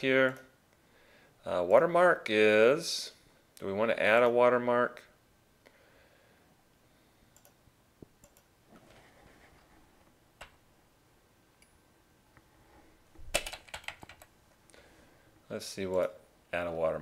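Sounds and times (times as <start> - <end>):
faint mouse clicks: 7.3 - 8.5
keyboard keystrokes: 13.3 - 14.3.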